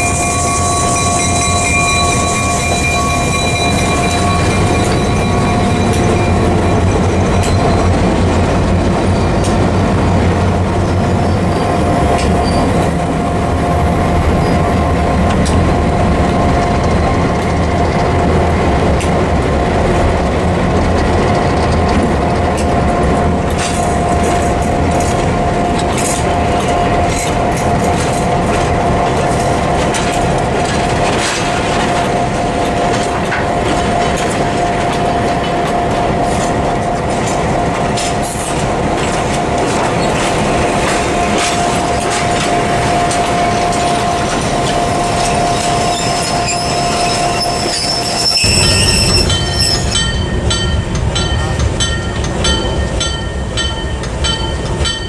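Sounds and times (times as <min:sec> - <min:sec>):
wheel squeal: 0:00.0 - 0:08.0, 0:11.2 - 0:12.8, 0:45.0 - 0:50.2
locomotive engines passing: 0:00.0 - 0:55.0
train wheels clicking over joints: 0:00.0 - 0:55.0.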